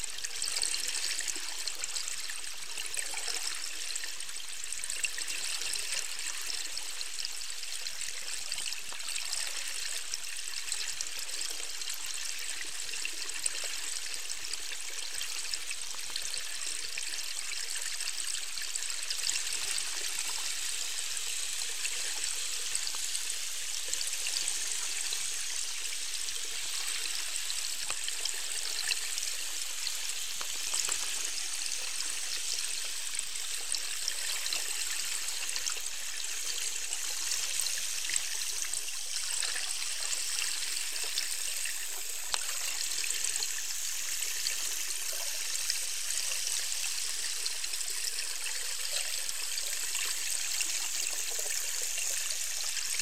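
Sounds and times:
underwater hiss with crackling: 19.1s - 53.0s.

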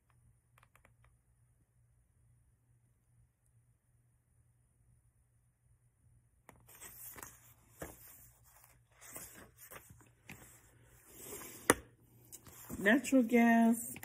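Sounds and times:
book pages rustling: 6.5s - 14.0s.

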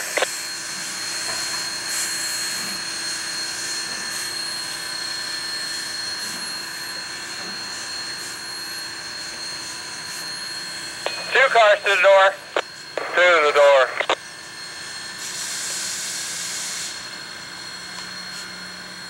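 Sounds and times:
thin high whine: 10.0s - 14.2s.

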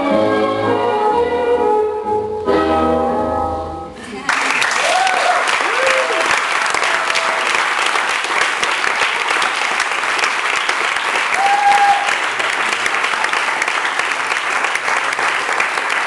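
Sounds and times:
audience applauding: 4.2s - 16.0s
high call from crowd: 11.3s - 12.3s.

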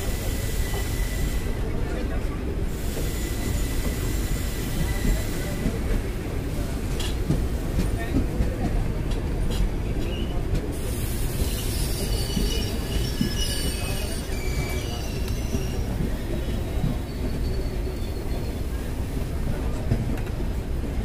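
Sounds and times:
trains rumbling past: 0.0s - 21.0s
high-pitched wheel squeals: 11.3s - 18.9s.

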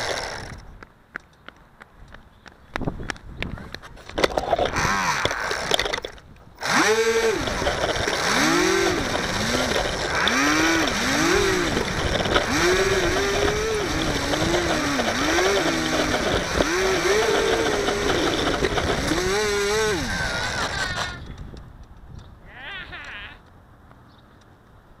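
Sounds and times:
rough rushing noise: 4.2s - 21.2s
model plane motor whine: 6.6s - 21.2s.

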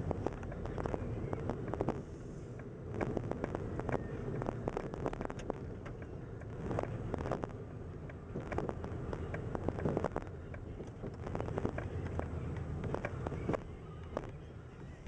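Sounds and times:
low wind rumble on microphone: 0.0s - 15.0s
sharp crackling clicks: 2.6s - 14.4s.

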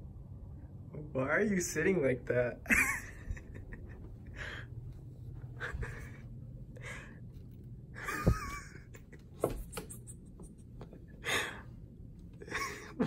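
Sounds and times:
quiet breaths: 4.1s - 7.8s.

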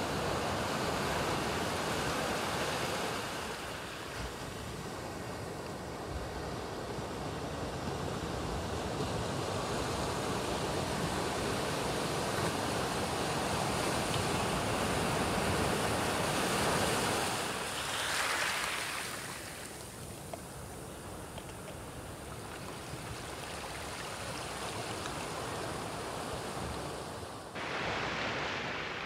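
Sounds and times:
foamy wash rushing over beach: 0.0s - 29.0s
waves breaking: 9.8s - 20.7s, 21.4s - 29.0s.

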